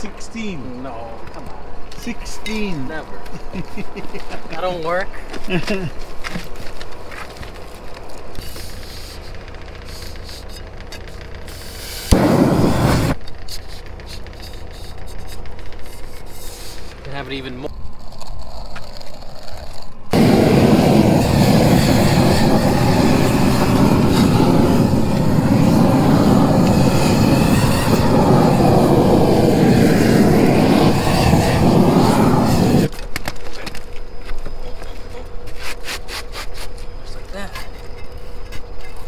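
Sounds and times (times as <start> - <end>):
roofing torch rushing: 0.0 - 37.4
light taps and scrapes: 13.2 - 17.2.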